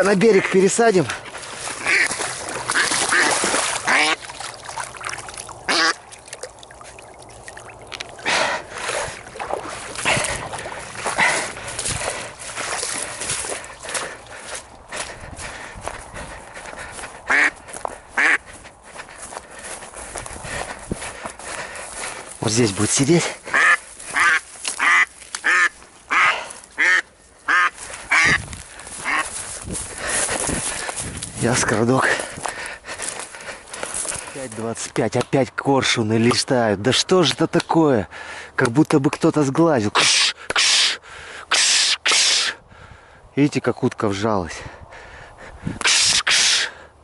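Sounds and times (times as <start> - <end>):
duck quacking: 0.0 - 0.9, 1.8 - 4.3, 5.6 - 6.0, 17.3 - 18.6, 23.4 - 28.4, 29.0 - 29.4
footsteps in wet muddy grass: 0.0 - 36.7.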